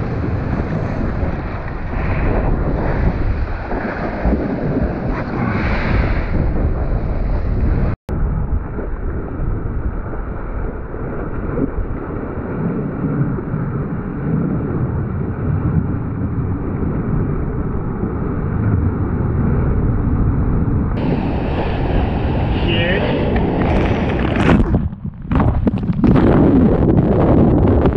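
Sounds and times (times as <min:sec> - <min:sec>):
rushing sea water and surf: 0:00.0 - 0:08.0, 0:21.0 - 0:24.8
wind buffeting microphone: 0:00.0 - 0:27.9.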